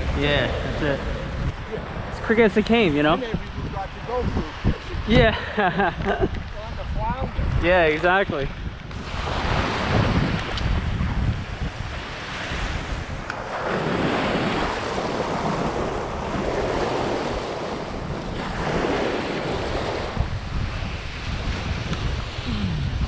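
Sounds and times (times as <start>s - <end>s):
wind buffeting microphone: 0.0s - 23.0s
small waves washing on sand: 8.9s - 22.5s.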